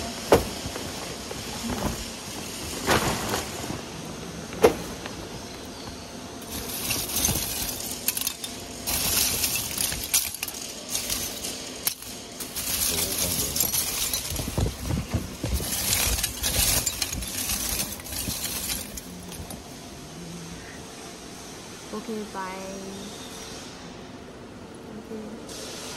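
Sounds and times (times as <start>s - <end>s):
charcoal pieces clinking and rattling: 6.4s - 19.7s.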